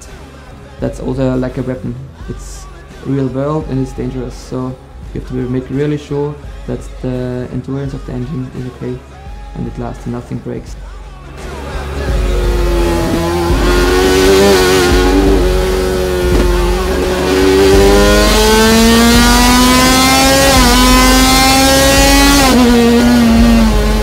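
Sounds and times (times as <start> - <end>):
motorcycle engine revving hard: 11.8 - 24.0.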